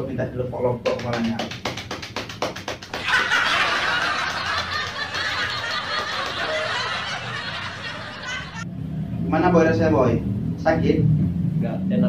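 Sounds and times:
hands slapping foamy head: 0.9 - 3.4.

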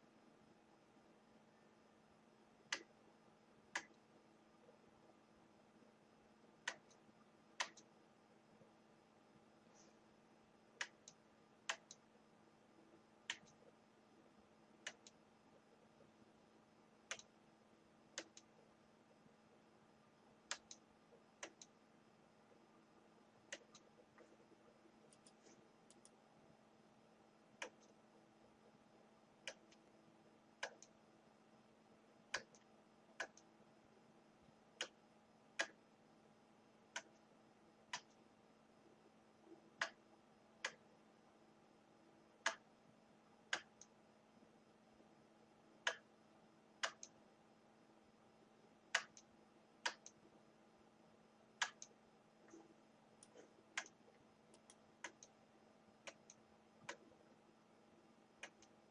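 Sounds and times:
faint steady hum: 0.0 - 58.9
sharp isolated clicks: 3.7 - 4.0, 7.6 - 7.9, 10.8 - 12.0, 13.3 - 13.6, 14.8 - 15.2, 17.1 - 17.3, 18.2 - 18.5, 20.5 - 20.8, 21.4 - 21.8, 30.6 - 31.0, 32.3 - 33.5, 35.6 - 35.8, 37.9 - 38.2, 39.8 - 40.0, 42.4 - 42.6, 43.5 - 44.0, 45.9 - 46.1, 46.8 - 47.2, 48.9 - 50.2, 51.6 - 52.6, 53.2 - 55.4, 56.0 - 57.1, 58.4 - 58.8.

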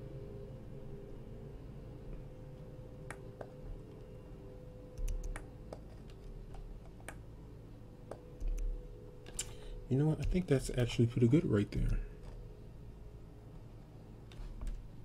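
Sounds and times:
faint steady hum: 0.0 - 15.0
keyboard and mouse clicks: 5.0 - 7.2, 8.1 - 8.7.

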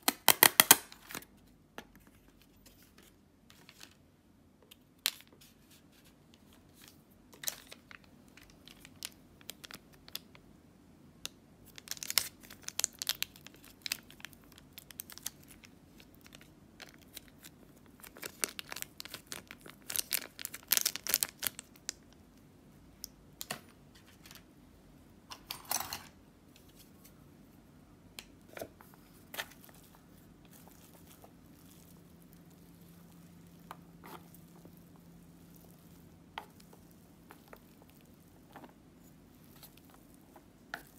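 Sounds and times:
foil sachets crinkling and tearing: 11.7 - 21.9, 29.4 - 38.3.

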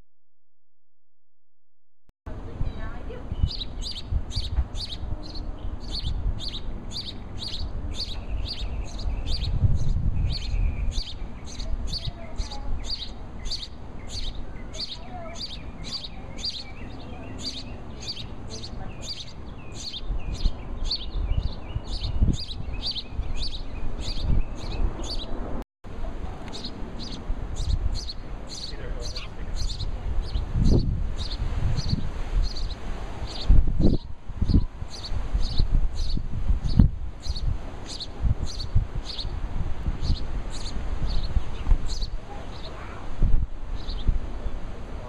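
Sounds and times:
sparrow chirping: 2.5 - 25.4, 26.4 - 39.4, 40.0 - 43.0, 43.7 - 44.6.

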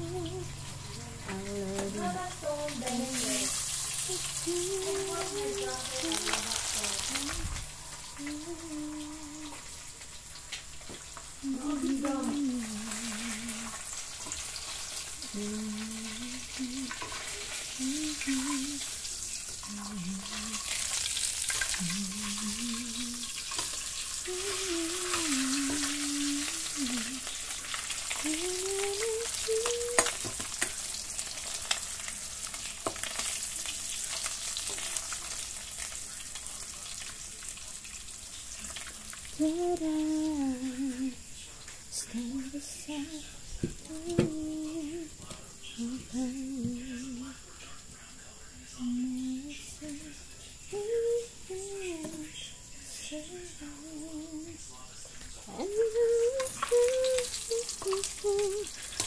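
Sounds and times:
woman humming: 0.0 - 9.7, 11.4 - 13.8, 15.2 - 17.0, 17.7 - 18.8, 19.6 - 20.7, 21.7 - 23.3, 24.2 - 27.3, 28.2 - 30.2, 39.4 - 41.2, 42.0 - 45.2, 45.8 - 47.3, 50.7 - 52.2, 53.0 - 54.6, 55.5 - 58.8
fish sizzling in hot oil: 0.0 - 59.0.

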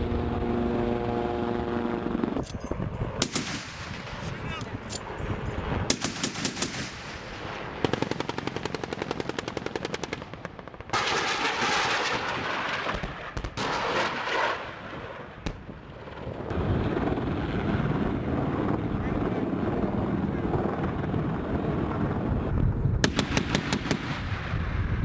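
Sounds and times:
rocket rushing roar: 0.0 - 9.6, 10.3 - 25.0
automatic cannon fire: 3.2 - 4.3, 5.8 - 14.8, 23.0 - 24.9
sharp crack: 3.2 - 5.1.

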